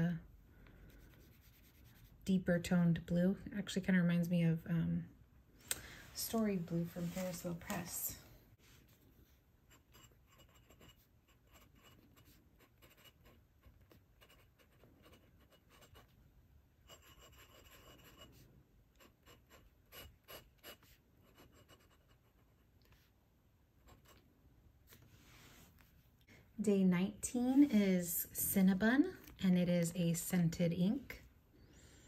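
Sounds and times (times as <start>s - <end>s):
pen scratching on paper: 0.9s - 2.1s, 9.7s - 16.2s, 16.8s - 23.1s.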